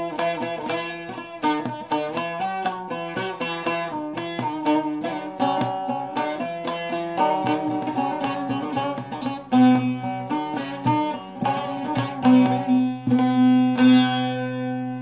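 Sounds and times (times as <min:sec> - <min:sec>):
long-necked lute plucked: 0:00.0 - 0:15.0
louder strummed strokes: 0:00.0 - 0:15.0.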